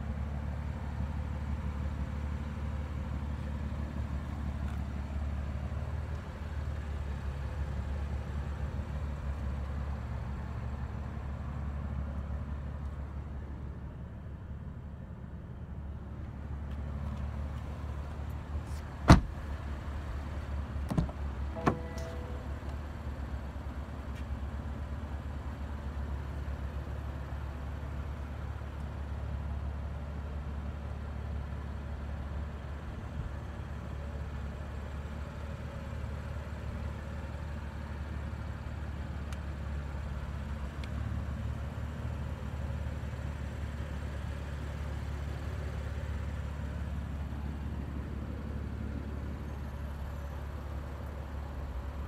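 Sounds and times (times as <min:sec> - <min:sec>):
car engine idling: 0:00.1 - 0:35.7.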